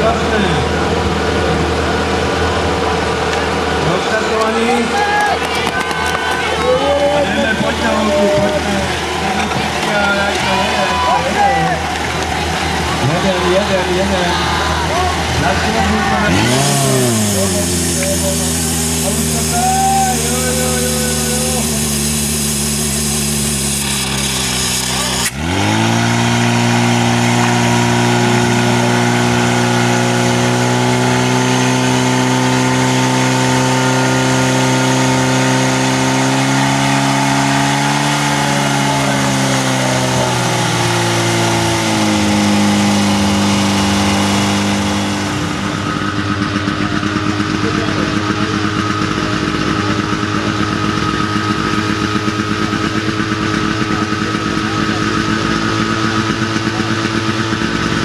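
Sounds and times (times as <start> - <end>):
engine pulsing at low revs: 0.0 - 58.0
pump engine at high revs: 0.0 - 58.0
water spraying from jets: 7.4 - 25.4.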